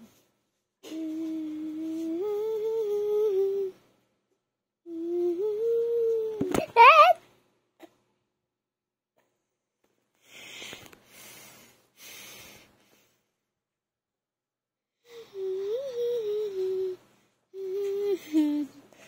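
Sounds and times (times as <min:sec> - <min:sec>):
person humming: 0:00.8 - 0:03.8, 0:04.9 - 0:07.2, 0:15.1 - 0:17.0, 0:17.6 - 0:18.8.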